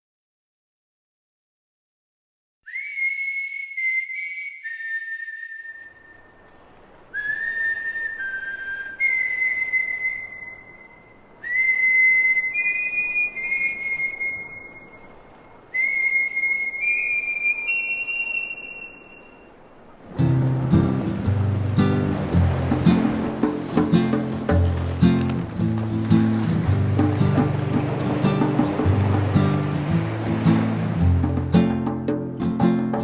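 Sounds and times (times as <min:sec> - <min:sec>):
high whistled notes: 0:02.7 - 0:06.5, 0:07.2 - 0:19.6
faint steady hiss: 0:04.1 - 0:27.4.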